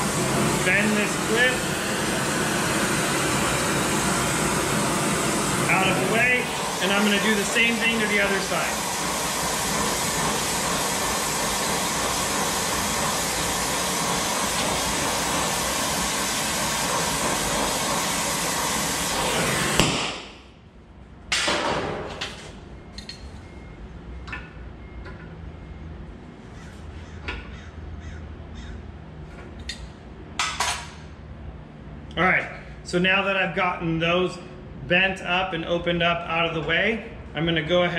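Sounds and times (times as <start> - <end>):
torch flame hissing: 0.0 - 20.3.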